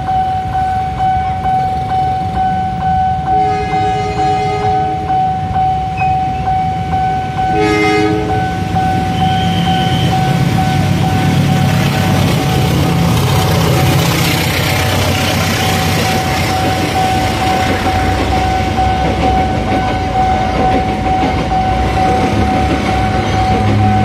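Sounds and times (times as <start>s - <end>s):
crossing warning signal ringing: 0.0s - 12.9s, 13.9s - 24.0s
diesel locomotive engine rumbling: 0.0s - 24.0s
train wheels clattering over rails: 8.3s - 24.0s.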